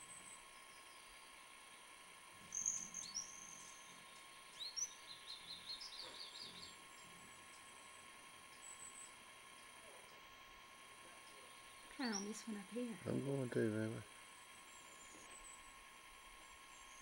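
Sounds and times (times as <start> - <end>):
songbird chirps: 0.2 - 7.6, 11.3 - 12.6
songbird whistled notes: 2.5 - 6.8.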